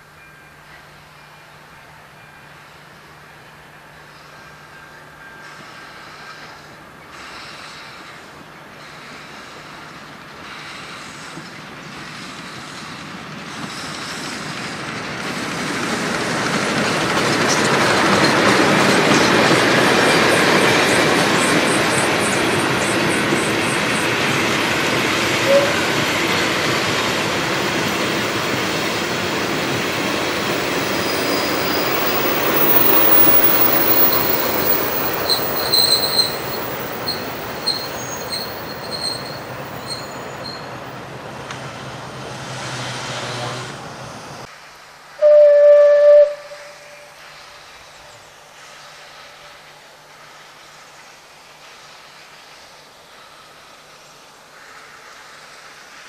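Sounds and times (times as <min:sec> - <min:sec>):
train rolling past: 0:00.0 - 0:56.0
wheels clicking over rail joints: 0:13.5 - 0:22.8, 0:24.3 - 0:41.7
high wheel squeals: 0:27.6 - 0:41.0.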